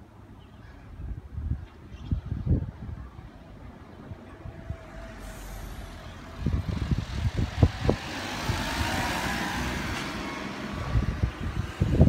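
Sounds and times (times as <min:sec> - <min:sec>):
wind buffeting microphone: 0:00.6 - 0:12.0
passing vehicle: 0:03.8 - 0:12.0.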